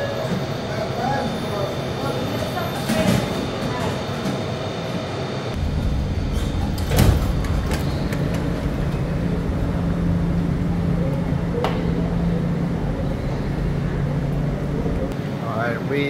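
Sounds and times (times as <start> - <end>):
train rumble: 0.0 - 15.2
steady low hum: 5.4 - 15.2
train doors opening with whoosh: 5.5 - 15.1.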